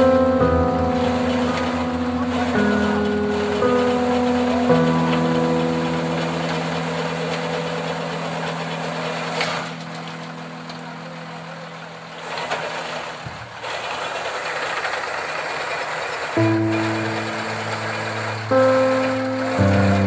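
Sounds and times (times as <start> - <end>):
background music chords: 0.0 - 12.3, 16.4 - 20.0
truck engine running: 0.0 - 20.0.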